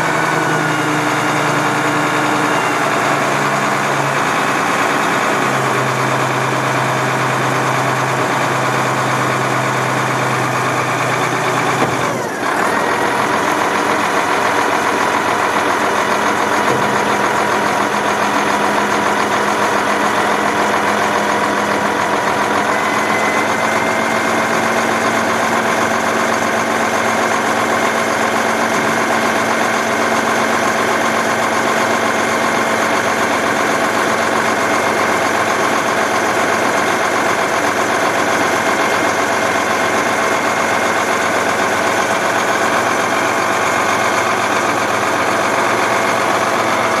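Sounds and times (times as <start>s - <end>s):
diesel truck engine idling: 0.0s - 47.0s
dump body lowering: 0.6s - 31.1s.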